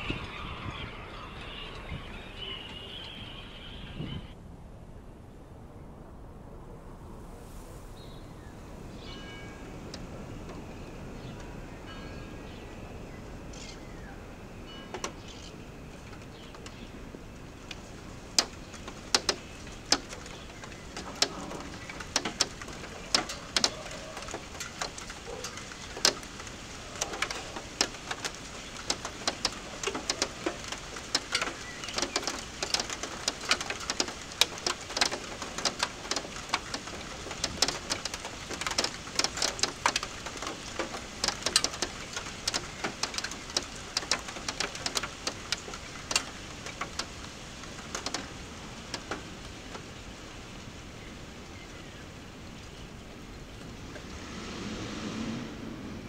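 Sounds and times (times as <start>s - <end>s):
raindrops tapping on hard surface: 14.9s - 50.6s.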